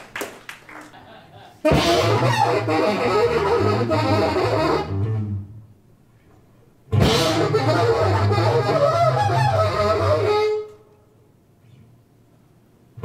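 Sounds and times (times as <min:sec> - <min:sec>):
jazz band playing: 0:01.6 - 0:05.6, 0:06.9 - 0:10.7.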